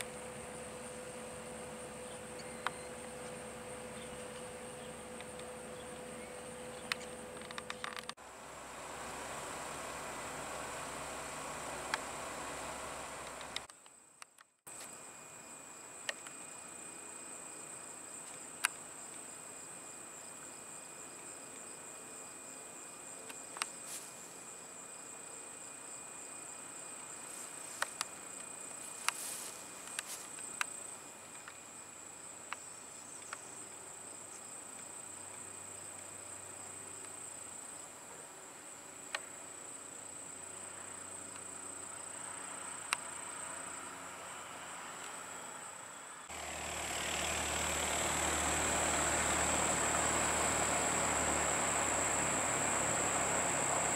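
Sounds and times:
faint pulsing chirp: 0.0s - 7.9s
insects chirring: 0.0s - 53.9s.

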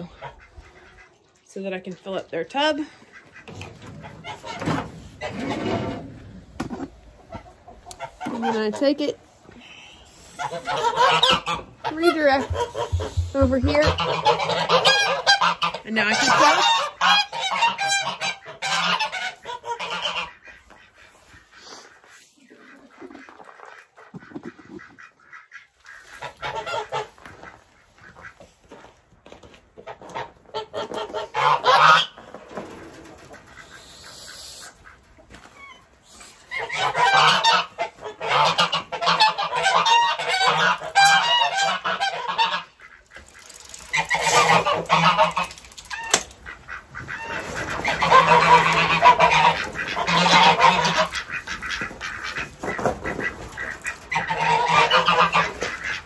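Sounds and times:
geese honking: 2.4s - 6.0s, 10.0s - 28.4s, 29.9s - 32.4s, 33.2s - 56.0s.

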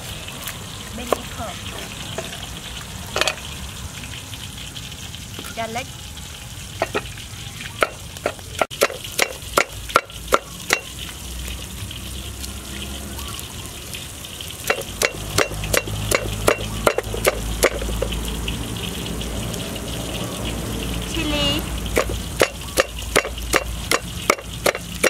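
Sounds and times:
pestle pounding in wooden mortar: 7.8s - 10.9s, 14.6s - 18.2s, 21.9s - 25.0s.

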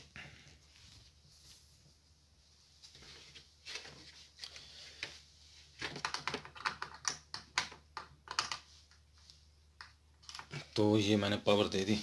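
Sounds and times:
hands handling parts clicking: 5.8s - 9.0s.

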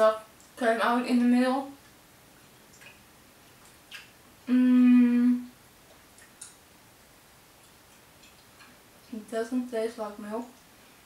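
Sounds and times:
woman humming: 4.5s - 5.5s.

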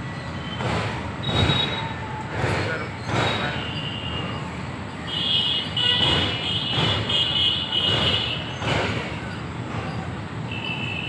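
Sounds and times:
train wheels clacking: 0.0s - 10.5s
high-pitched wheel squeal: 0.0s - 11.0s
train rumbling over bridge: 0.0s - 11.0s.

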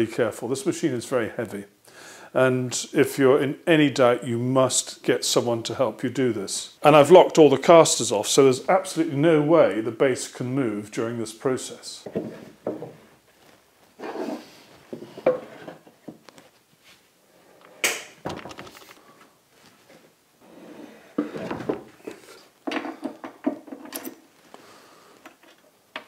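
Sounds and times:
metal knocking and scraping on wood: 12.0s - 13.1s, 14.0s - 16.3s, 21.2s - 24.2s.

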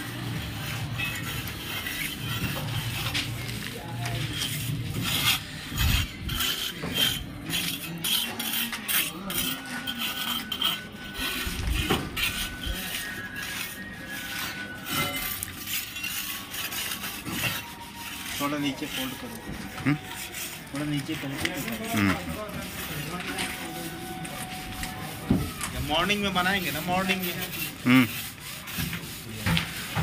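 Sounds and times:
scraping and rubbing: 0.0s - 30.0s.

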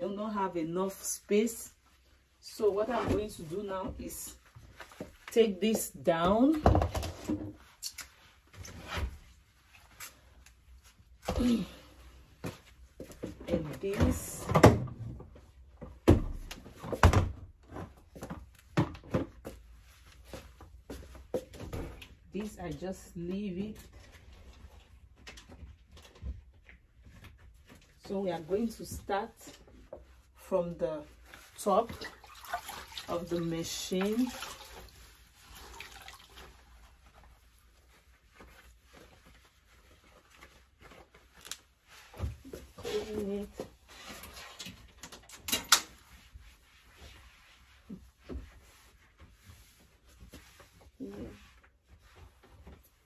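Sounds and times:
damp cloth wiping: 27.2s - 44.6s, 45.9s - 53.0s.

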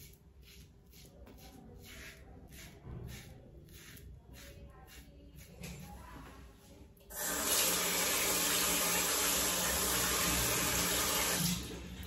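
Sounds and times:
tap water running into sink: 7.1s - 12.0s.

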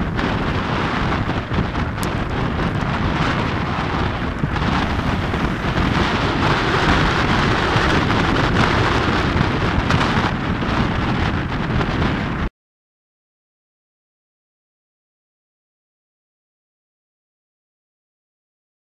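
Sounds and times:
road noise rumbling: 0.0s - 12.5s.

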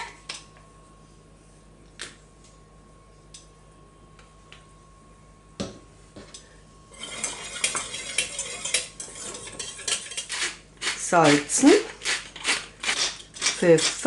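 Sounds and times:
utensil scraping a saucepan: 6.9s - 14.0s.

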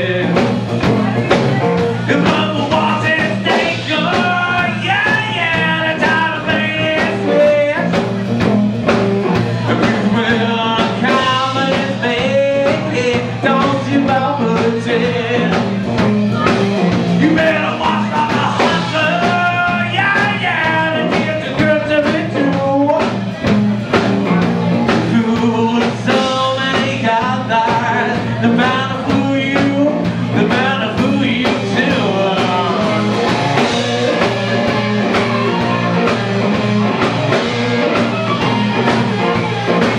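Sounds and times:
bass guitar: 0.0s - 39.9s
electric guitar: 0.0s - 39.9s
steady drum beat: 0.0s - 39.9s
amplified harmonica wailing: 32.8s - 39.9s.

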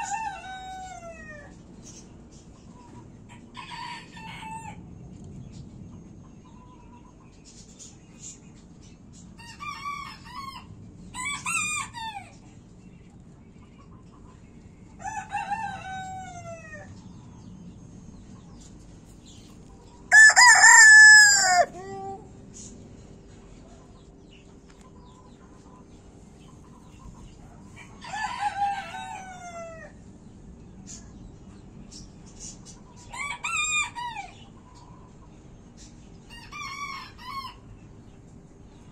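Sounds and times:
rooster crowing: 15.0s - 16.9s, 20.1s - 21.8s, 28.0s - 29.9s.

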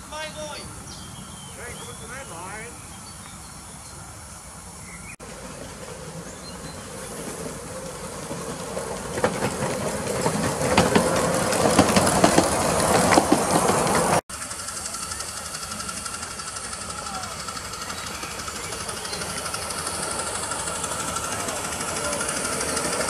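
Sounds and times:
miniature steam locomotive running: 0.0s - 23.0s
wheels clicking and clattering: 5.2s - 23.0s.

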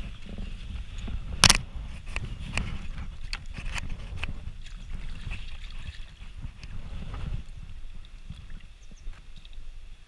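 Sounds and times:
fabric rubbing on microphone: 0.0s - 7.7s
faint stream water hiss: 0.0s - 10.0s.

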